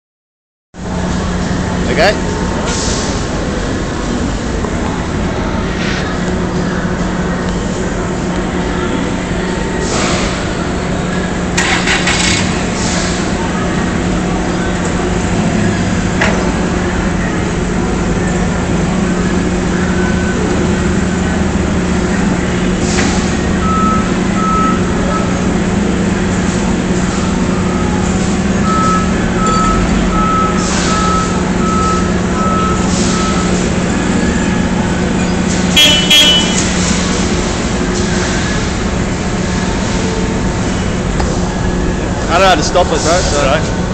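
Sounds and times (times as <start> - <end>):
forklift engine running: 0.8 - 43.9
reversing alarm beeps: 23.6 - 25.4, 27.1 - 34.4.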